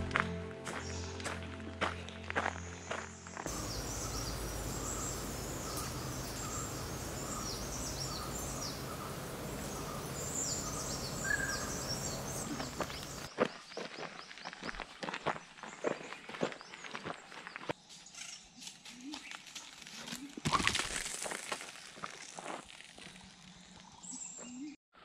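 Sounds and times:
birds chirping: 1.9 - 19.4
lower bird call: 3.5 - 13.3
steady hiss: 3.5 - 13.3.

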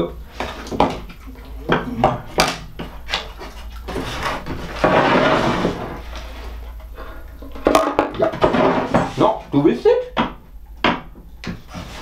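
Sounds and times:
wood scraping on bench: 2.8 - 6.9, 7.5 - 9.4.

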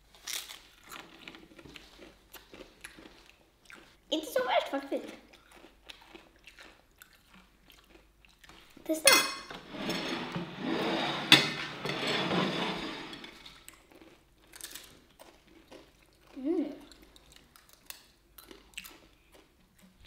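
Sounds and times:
spoon scraping ceramic plate: 9.0 - 13.4.

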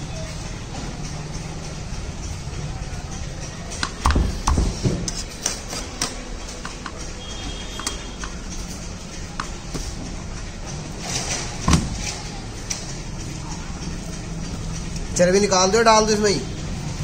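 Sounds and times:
knife clicks and taps on board: 3.8 - 7.0.

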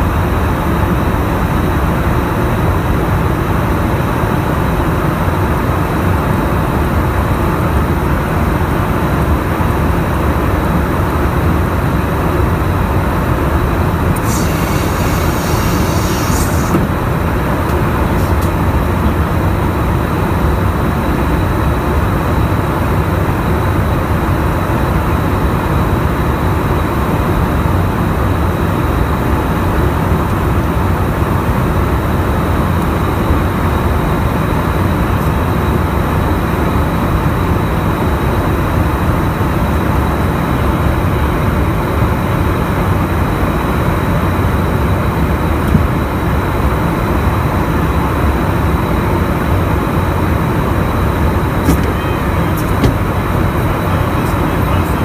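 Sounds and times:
jet engine and airflow rush: 0.0 - 55.0
thin high whine: 13.8 - 22.7, 44.6 - 55.0
brief high hiss: 14.2 - 16.9.

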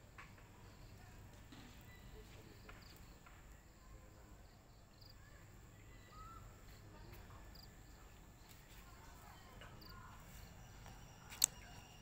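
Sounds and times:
faint high chirps: 1.6 - 4.1, 4.9 - 7.0, 8.4 - 12.0.

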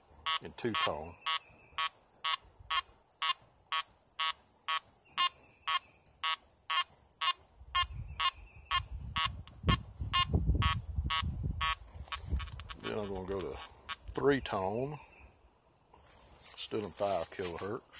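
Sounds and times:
metal detector short beeps: 10.2 - 12.9.

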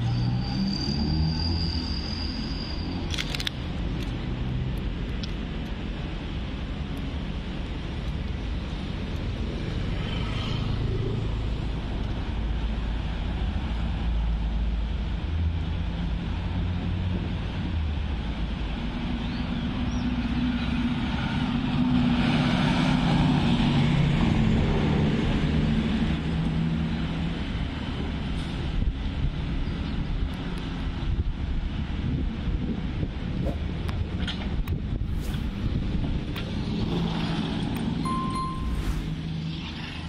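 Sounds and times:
vehicles passing by: 0.0 - 40.0
wind rumbling on microphone: 3.1 - 40.0.

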